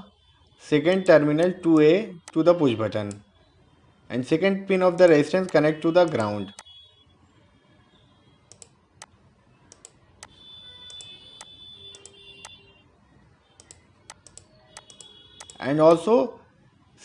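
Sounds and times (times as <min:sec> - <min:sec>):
computer mouse clicks: 0:08.5 - 0:09.1, 0:09.7 - 0:12.6, 0:13.6 - 0:15.6.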